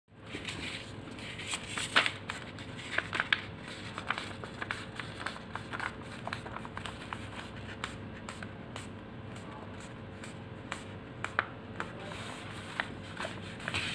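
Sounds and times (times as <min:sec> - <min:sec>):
paper crinkling: 0:00.2 - 0:13.9.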